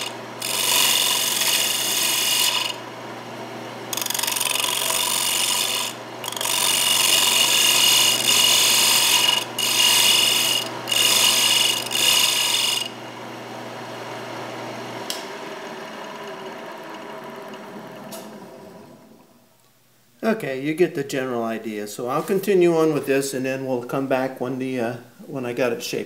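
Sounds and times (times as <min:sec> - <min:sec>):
turning tool scraping wood: 0:00.0 - 0:02.8, 0:03.9 - 0:13.0
lathe motor hum: 0:00.0 - 0:19.3.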